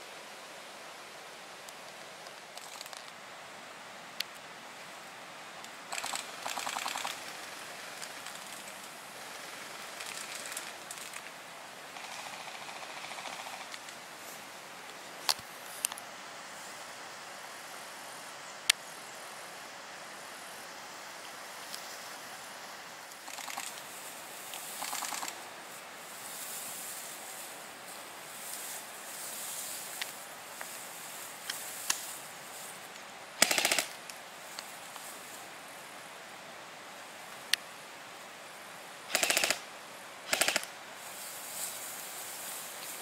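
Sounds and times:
airsoft gun rattling bursts: 5.9s - 7.4s, 9.9s - 11.3s, 23.2s - 23.8s, 24.6s - 25.4s, 33.4s - 34.0s, 39.1s - 39.6s, 40.3s - 40.7s.

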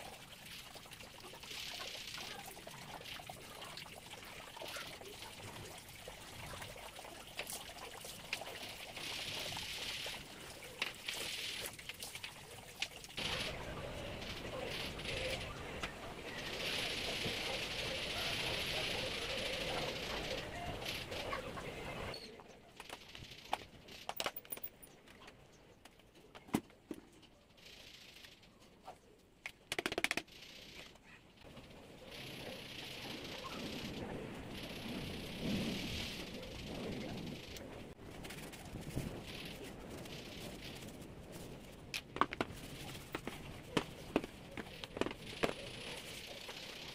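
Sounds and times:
water trickling and splashing: 0.0s - 22.2s
plastic clicks and knocks: 42.0s - 42.5s.

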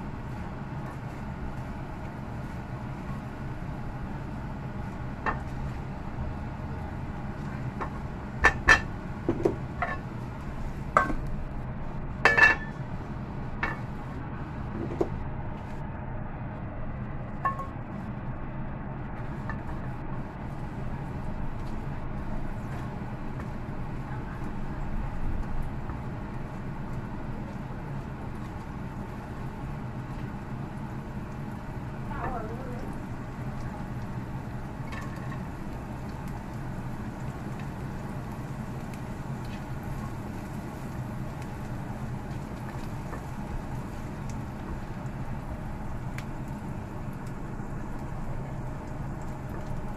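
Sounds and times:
steady low hum: 0.0s - 49.9s
cookware clinking and knocking: 12.3s - 12.7s.

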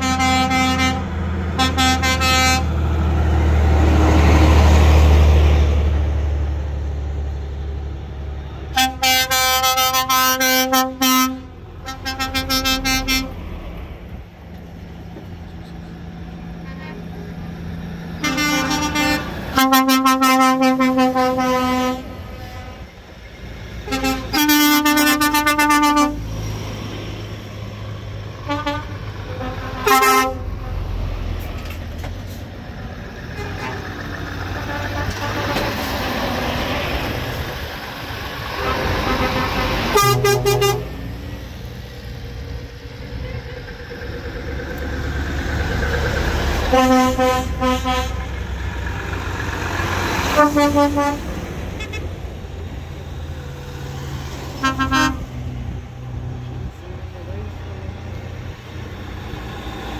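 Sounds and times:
vehicle horns tooting: 0.0s - 2.7s, 8.7s - 13.4s, 18.2s - 22.9s, 23.9s - 26.2s, 28.4s - 30.5s, 34.5s - 35.9s, 38.6s - 41.1s, 46.7s - 48.3s, 50.3s - 51.2s, 51.8s - 52.1s, 54.6s - 55.4s
loud engine rumble: 0.0s - 59.9s.

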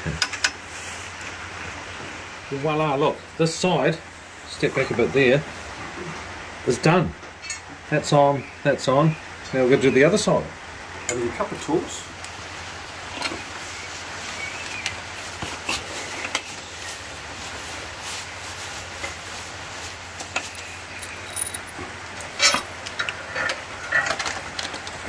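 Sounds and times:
light metal clicks and clinks: 20.4s - 21.8s.

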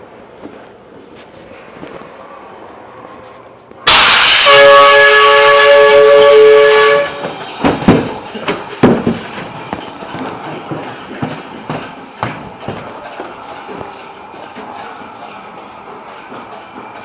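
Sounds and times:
horn-like chord: 3.9s - 7.2s
loud blast of hissing air: 3.9s - 8.5s
sharp knocks: 7.2s - 12.9s.

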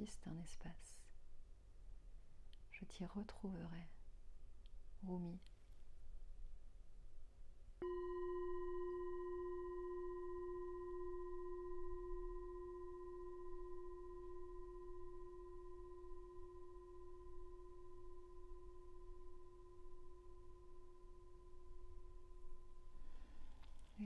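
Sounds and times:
singing bowl ringing: 7.8s - 23.7s.

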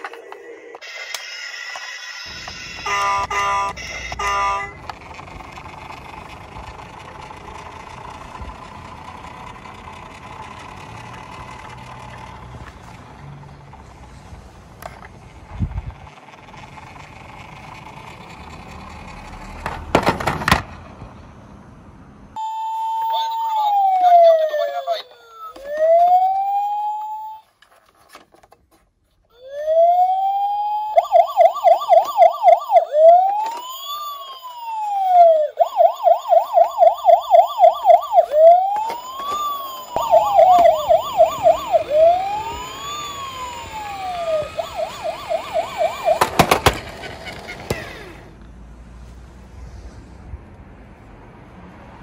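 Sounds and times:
toy police siren wailing: 0.0s - 4.8s, 22.4s - 27.5s, 29.3s - 48.2s.

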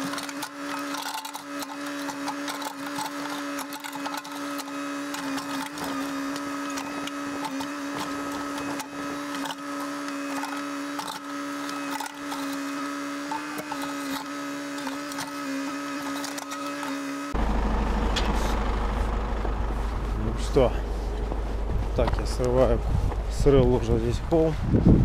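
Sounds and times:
bucket digging soil and stones: 0.0s - 17.4s
diesel engine and hydraulics: 0.0s - 24.7s.

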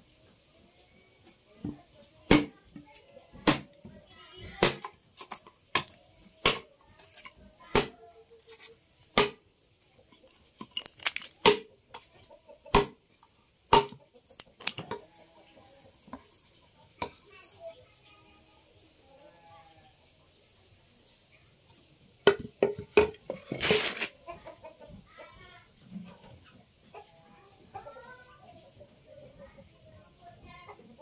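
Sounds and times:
bamboo splintering: 2.3s - 2.5s, 3.4s - 3.7s, 4.6s - 6.6s, 7.7s - 9.4s, 10.6s - 11.7s, 12.7s - 13.0s, 13.7s - 14.0s, 23.4s - 24.1s
machete chopping bamboo: 2.3s - 2.5s, 3.4s - 3.7s, 4.6s - 6.6s, 7.7s - 8.0s, 9.1s - 9.4s, 11.0s - 11.7s, 12.7s - 13.0s, 13.7s - 14.0s.

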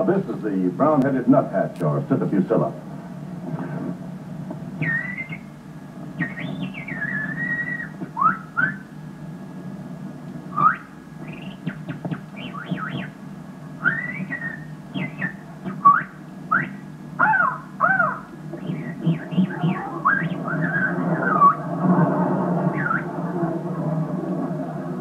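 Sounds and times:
steady low hum: 0.0s - 25.0s
person whistling bird calls: 4.8s - 5.5s, 6.2s - 8.9s, 10.6s - 11.8s, 13.8s - 16.8s, 18.6s - 21.6s.

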